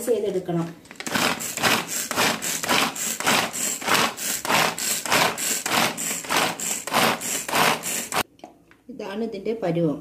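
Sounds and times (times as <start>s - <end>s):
pull cord chopper whirring: 1.0s - 8.2s.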